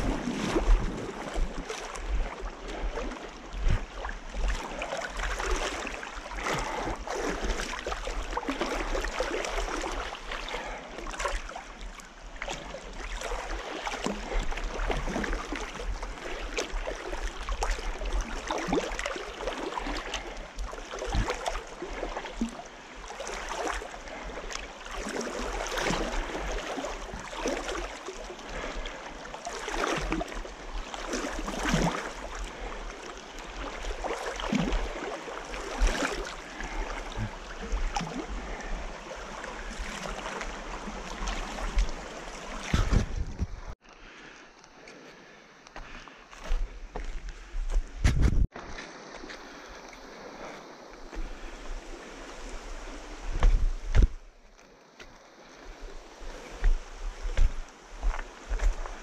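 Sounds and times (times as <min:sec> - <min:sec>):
water splashing from wading: 0:00.0 - 0:43.8
river flowing: 0:00.0 - 0:47.2, 0:48.6 - 0:59.0.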